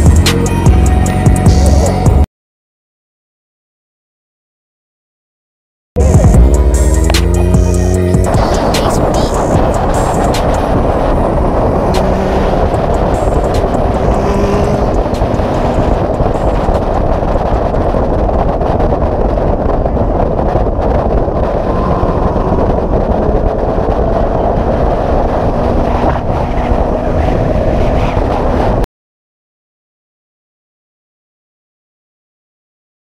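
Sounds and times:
motorcycle engine running: 6.0s - 27.2s
wind rushing over microphone: 6.0s - 28.9s.

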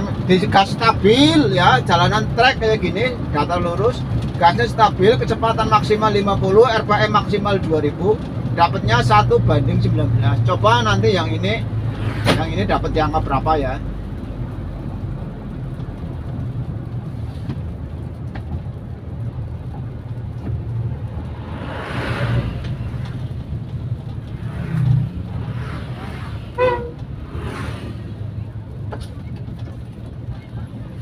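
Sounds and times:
car engine cruising: 0.0s - 31.0s
road noise: 0.0s - 31.0s
vehicle passing: 9.2s - 18.2s, 19.2s - 31.0s
short pitched toot: 26.6s - 27.0s.

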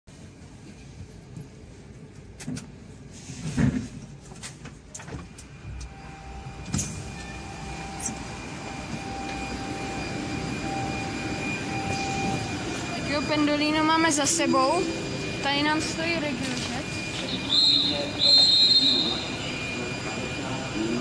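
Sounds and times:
train rumble: 0.1s - 21.0s
train electric whine: 5.0s - 21.0s.

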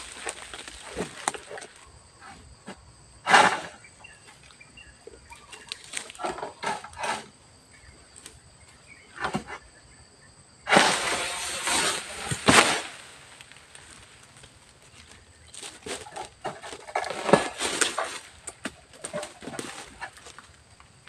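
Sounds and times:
dry palm fronds rustling: 0.0s - 2.4s, 4.3s - 7.3s, 10.7s - 21.0s.

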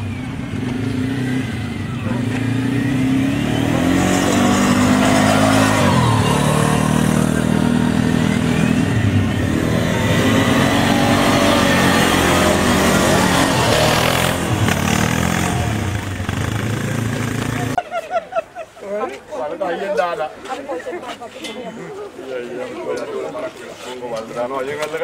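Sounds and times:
quad bike engines revving: 0.0s - 17.8s.

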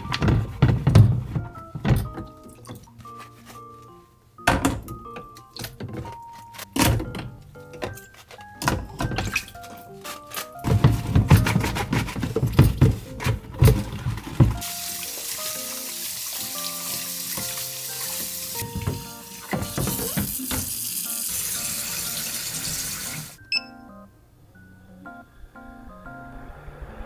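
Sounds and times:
plastic parts clattering in sink: 0.0s - 3.4s, 4.5s - 14.7s, 17.4s - 20.8s
light background music: 0.0s - 26.9s
tap running: 16.3s - 23.2s.

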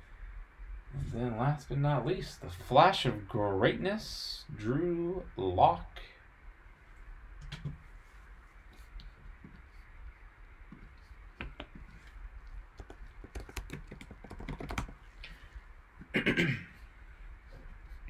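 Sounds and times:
computer keyboard typing: 12.8s - 15.0s.

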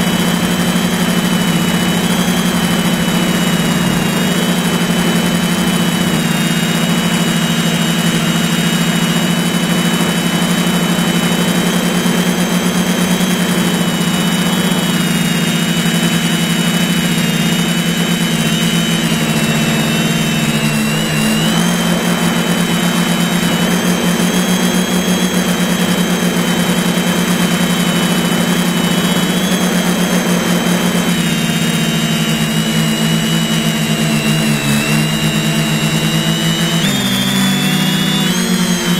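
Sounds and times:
drone motors and propellers humming: 0.0s - 38.9s.

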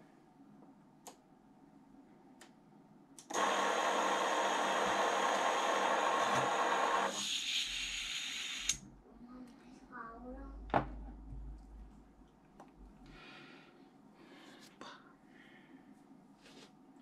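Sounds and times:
drone motors whirring whine: 3.3s - 8.8s.

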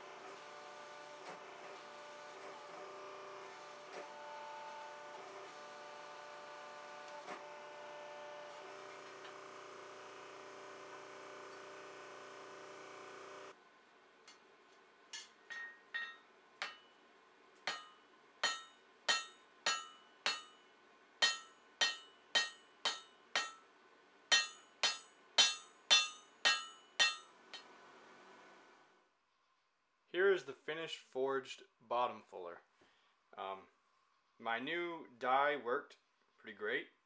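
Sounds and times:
forging press motor droning: 0.0s - 13.5s
hammer ringing on anvil: 15.2s - 16.9s, 17.7s - 20.6s, 21.2s - 23.7s, 24.3s - 27.3s.

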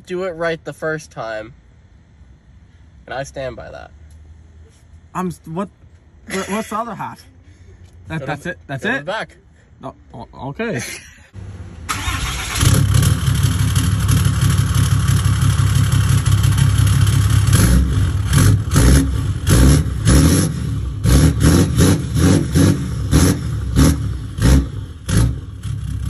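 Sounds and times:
pickup truck engine idling and revving: 11.4s - 26.0s.

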